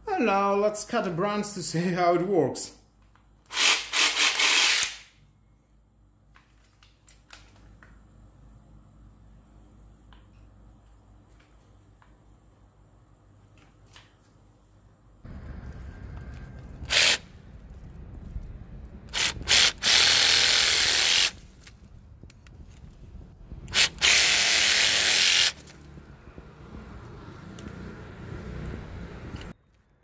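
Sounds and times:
cordless saw cutting wood: 0:19.2 - 0:21.4, 0:23.7 - 0:25.7.

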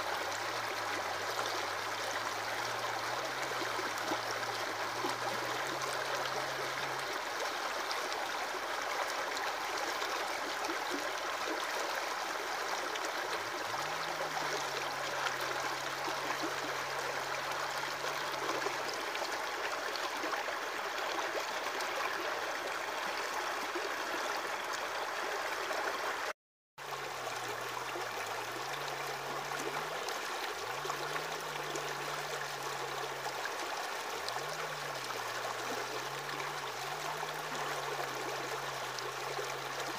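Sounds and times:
water splashing and trickling: 0:00.0 - 0:39.9.

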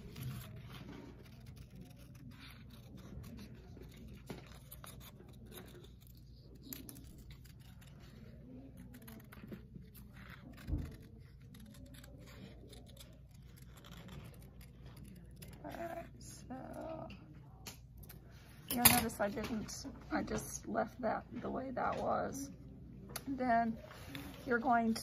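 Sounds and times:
scissors snipping paper: 0:00.0 - 0:16.2.

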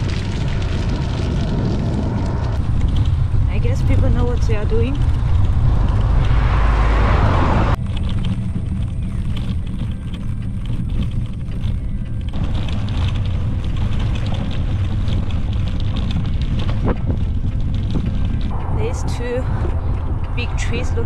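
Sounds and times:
bicycle tyres on road: 0:00.0 - 0:21.0
wind rumble on microphone: 0:00.0 - 0:21.0
car passing close by: 0:03.9 - 0:08.7.

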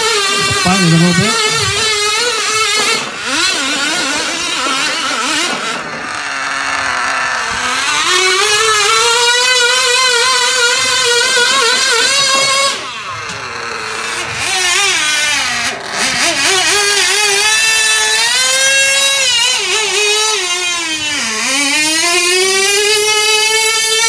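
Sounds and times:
small motor wavering whine: 0:00.0 - 0:24.0.

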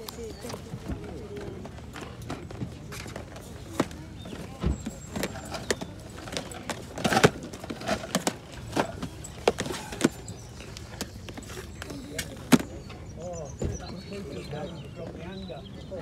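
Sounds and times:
plastic cases clicking and knocking: 0:01.4 - 0:12.9.

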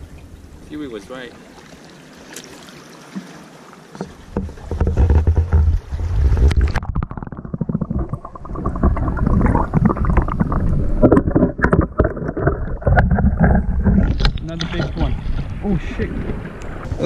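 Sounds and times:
muffled underwater rushing water: 0:00.0 - 0:17.0
seawater splashing against net: 0:01.4 - 0:07.0.

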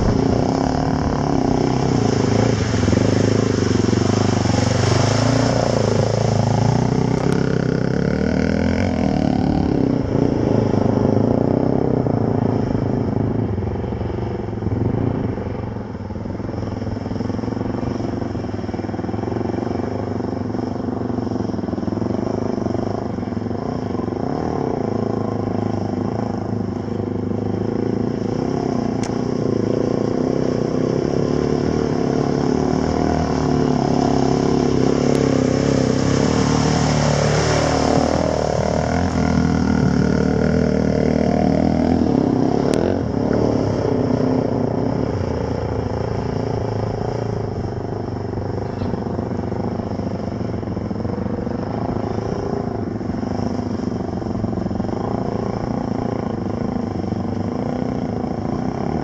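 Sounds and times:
water spray hiss: 0:00.0 - 0:06.9
dirt bike engines: 0:00.0 - 0:59.0.

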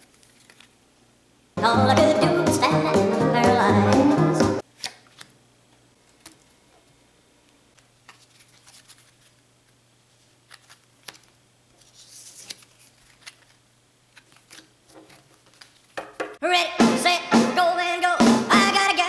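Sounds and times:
cards brushing together: 0:00.0 - 0:00.8, 0:07.8 - 0:16.0.

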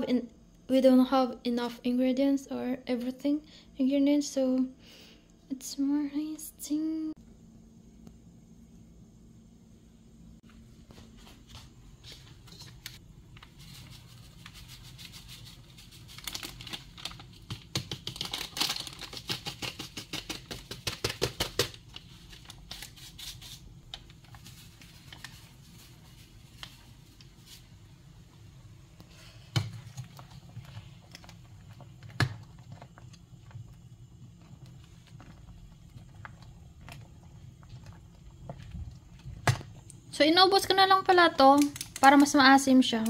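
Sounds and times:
low steady hum: 0:00.0 - 0:43.0
plastic packet crinkling: 0:15.3 - 0:26.8.

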